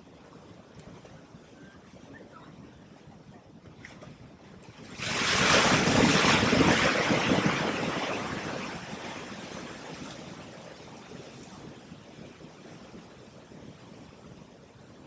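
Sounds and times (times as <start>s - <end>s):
ocean wave breaking: 4.8s - 10.6s.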